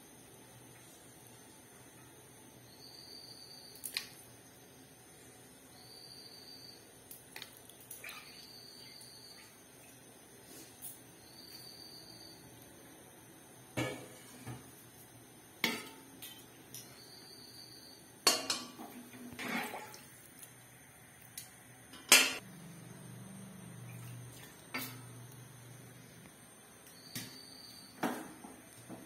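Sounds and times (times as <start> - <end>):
metal pot and utensils clanking: 15.6 - 16.9, 18.2 - 19.9, 21.9 - 22.4.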